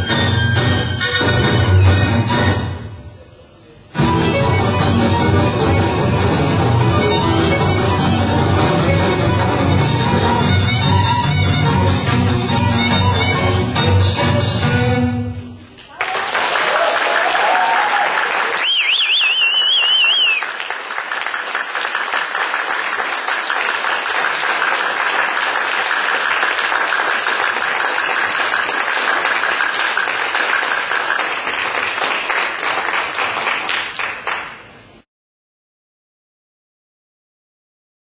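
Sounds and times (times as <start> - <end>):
audience applauding: 15.8 - 34.8
high warbling whistle: 18.6 - 20.4.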